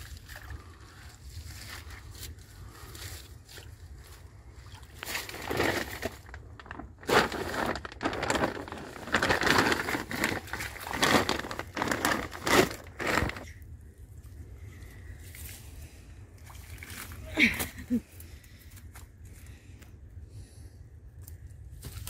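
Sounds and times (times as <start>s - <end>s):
plastic bag rustling: 5.1s - 13.5s
dry reeds crackling: 5.3s - 13.5s.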